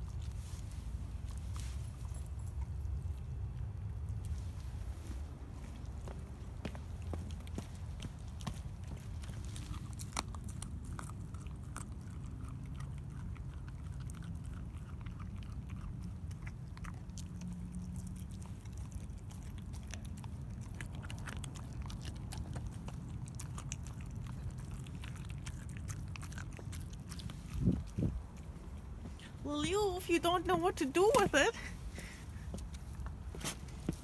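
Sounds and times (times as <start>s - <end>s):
dog chewing bone: 5.7s - 29.2s.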